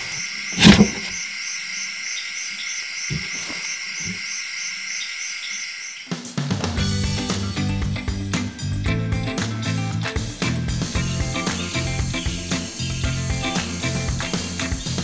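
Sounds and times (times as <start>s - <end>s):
insects or frogs calling: 0.0s - 6.4s, 11.0s - 15.0s
soft thuds: 0.6s - 1.2s
music: 6.3s - 15.0s.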